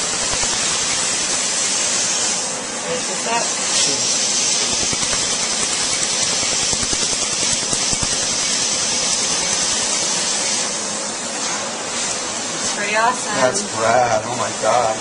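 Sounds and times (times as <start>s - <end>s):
laser pulses clicking: 0.0s - 1.6s, 4.5s - 9.8s
steady hiss: 0.0s - 2.6s.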